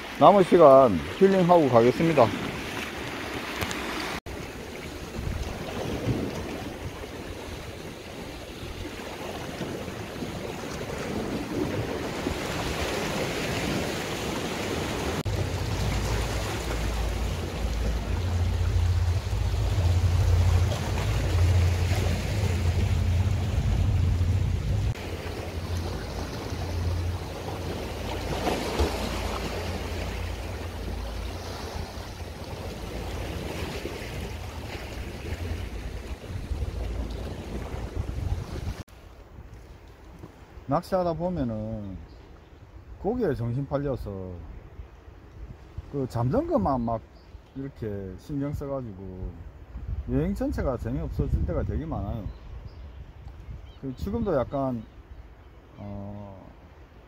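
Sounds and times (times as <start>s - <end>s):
waves breaking against rocks: 0.0s - 39.4s
wind rumbling on microphone: 2.3s - 40.6s, 49.2s - 55.3s.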